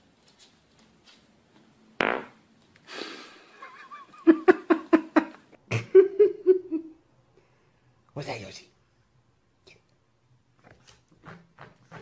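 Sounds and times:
person laughing: 3.6s - 7.0s.

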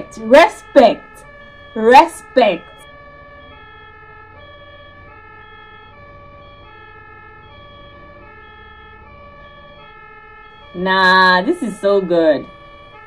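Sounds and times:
two-tone ambulance siren: 0.0s - 13.0s
engine and road hum: 2.8s - 10.7s.

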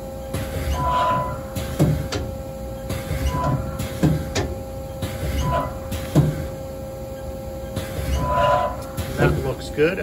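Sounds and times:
machine hum: 0.0s - 10.0s
lathe turret clunk: 0.3s - 6.6s
short machine tone: 2.7s - 3.8s, 5.3s - 5.9s, 8.1s - 8.8s.

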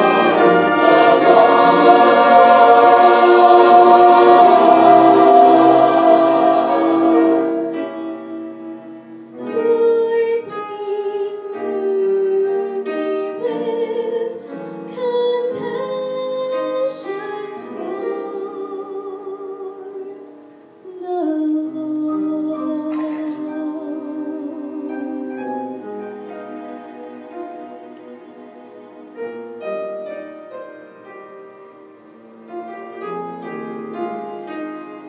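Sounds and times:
church choir singing: 0.0s - 8.6s, 23.0s - 28.0s, 32.9s - 35.0s
small orchestra playing: 0.0s - 20.5s, 21.7s - 35.0s.

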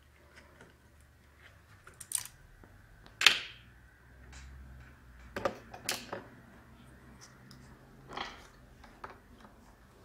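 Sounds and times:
clicks and knocks of small parts: 1.8s - 2.4s.

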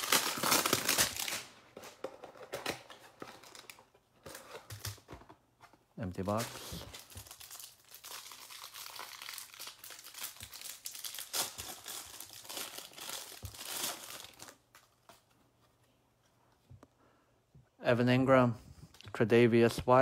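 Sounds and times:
plastic wrapper crinkling and tearing: 0.0s - 1.6s, 6.2s - 14.9s.

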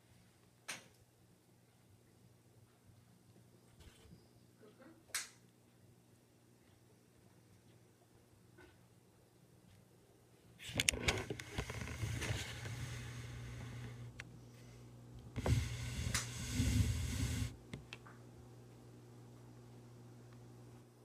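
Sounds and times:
wheelchair electric motors: 10.8s - 14.2s, 15.4s - 17.6s.

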